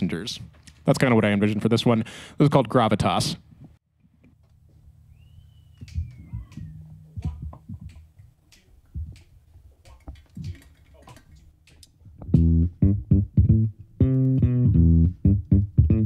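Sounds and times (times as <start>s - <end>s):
electric bass and guitar: 12.2s - 16.0s
jazz band playing: 12.3s - 16.0s.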